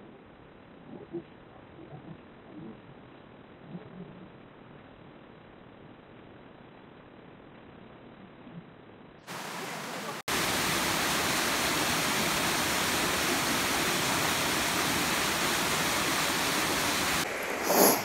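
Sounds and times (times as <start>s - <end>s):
fast water rushing: 9.3s - 18.0s.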